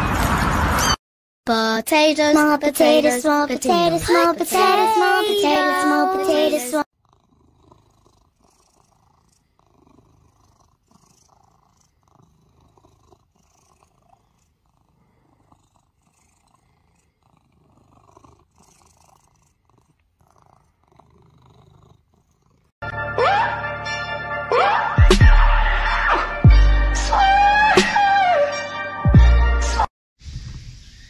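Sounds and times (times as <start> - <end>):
cat purring: 3.8 - 22.8.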